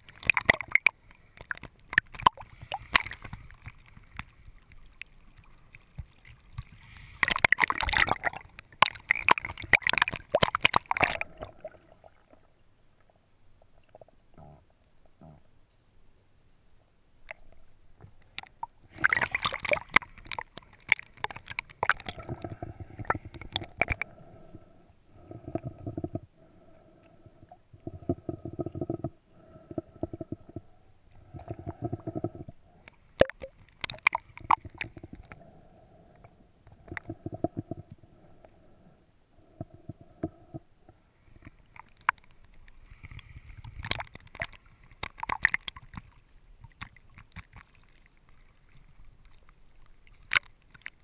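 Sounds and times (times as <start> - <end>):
bubbles crackling and splashing: 0.0 - 12.6, 18.0 - 24.1, 27.4 - 35.6, 36.7 - 38.0, 41.3 - 51.0
water gurgling and sloshing: 0.0 - 15.6, 17.2 - 51.0
muffled water surges: 0.0 - 51.0.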